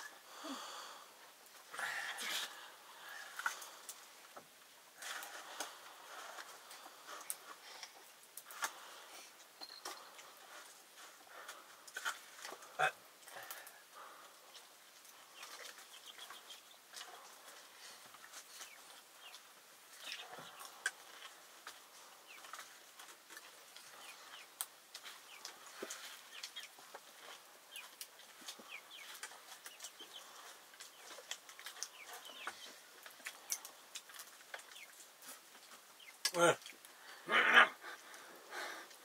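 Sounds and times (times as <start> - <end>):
chickens clucking: 11.4 - 36.8.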